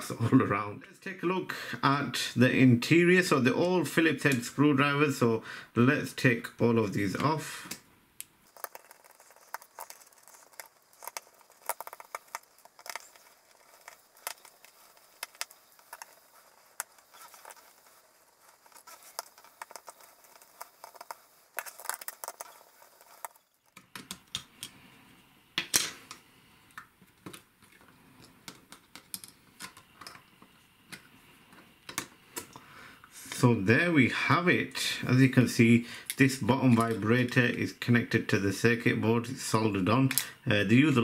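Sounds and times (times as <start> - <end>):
light tapping and handling: 8.5 - 24.8.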